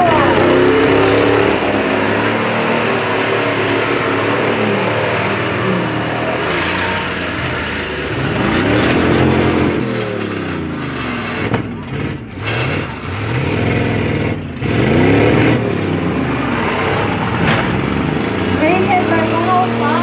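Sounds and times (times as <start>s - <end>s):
truck engines revving: 0.0s - 20.0s.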